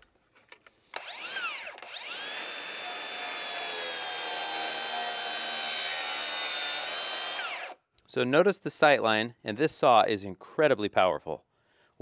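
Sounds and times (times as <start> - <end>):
circular saw motor whining: 1.0 - 7.8.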